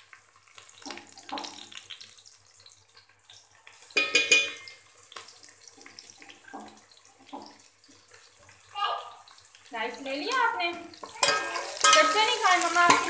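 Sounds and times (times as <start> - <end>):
oil sizzling in a pot: 0.0 - 13.0
metal spoon scraping a pot: 11.0 - 13.0.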